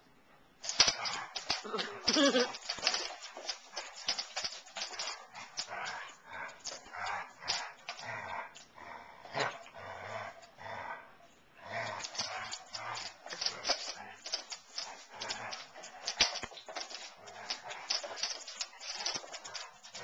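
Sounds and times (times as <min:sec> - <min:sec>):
claws scrabbling on hardwood floor: 0:00.6 - 0:08.2, 0:11.9 - 0:20.0.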